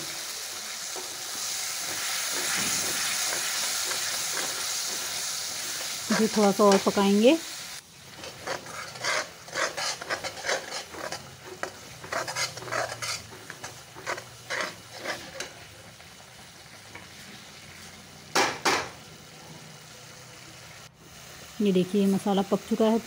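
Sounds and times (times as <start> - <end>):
food sizzling: 0.0 - 23.0
spoon scraping metal pan: 8.1 - 15.6.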